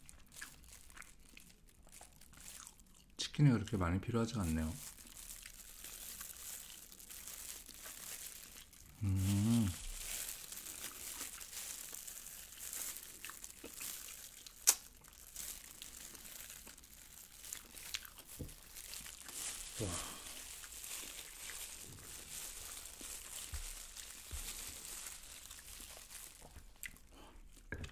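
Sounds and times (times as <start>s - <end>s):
person chewing food: 0.0s - 3.2s, 4.8s - 27.9s
plastic glove crinkling: 0.0s - 27.8s
person humming: 9.0s - 9.9s, 19.8s - 20.2s.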